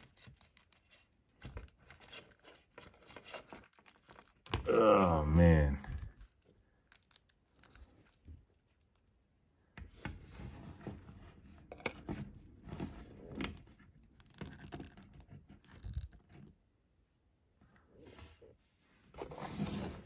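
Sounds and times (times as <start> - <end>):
plastic parts clicking and scraping: 0.0 - 4.6, 6.1 - 9.1, 10.8 - 16.6.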